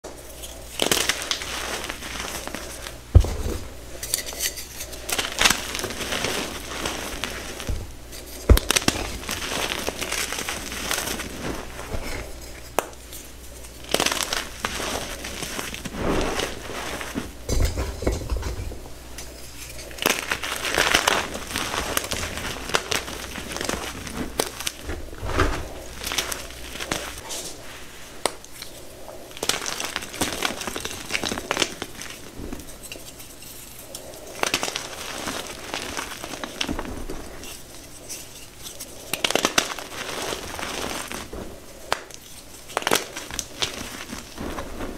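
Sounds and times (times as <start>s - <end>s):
chalk crumbling between fingers: 4.0s - 17.4s, 19.2s - 44.9s.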